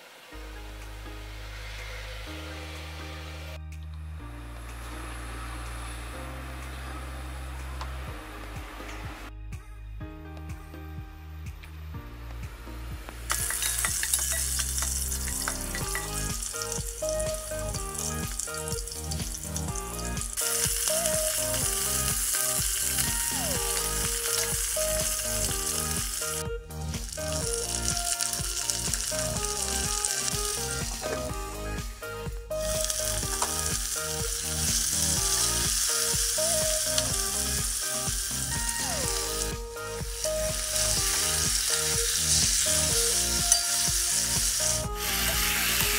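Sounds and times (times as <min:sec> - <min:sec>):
onions and chicken sizzling in oil: 0:00.0 - 0:00.4, 0:13.3 - 0:26.4, 0:27.0 - 0:45.9
quiet background music: 0:00.0 - 0:45.9.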